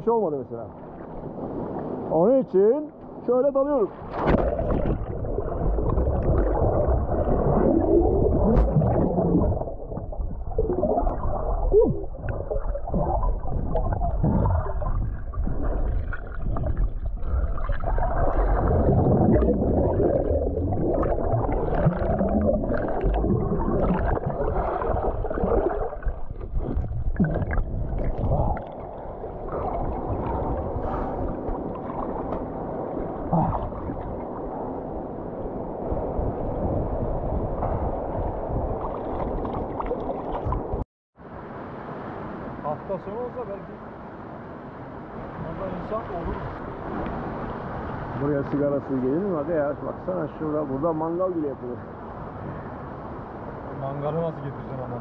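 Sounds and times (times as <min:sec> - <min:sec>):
muffled underwater bubbles: 0:04.2 - 0:34.7.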